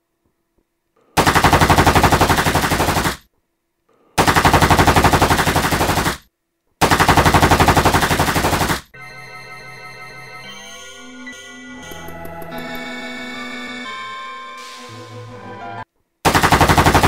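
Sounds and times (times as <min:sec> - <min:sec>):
automatic rifle fire: 0:01.2 - 0:03.3, 0:04.2 - 0:08.9, 0:16.2 - 0:17.0
music with organ-like notes: 0:09.0 - 0:15.9.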